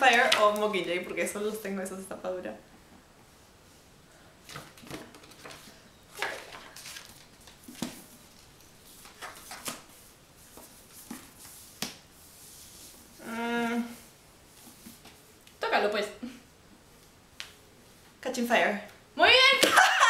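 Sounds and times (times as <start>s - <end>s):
book pages rustling: 4.5s - 13.1s.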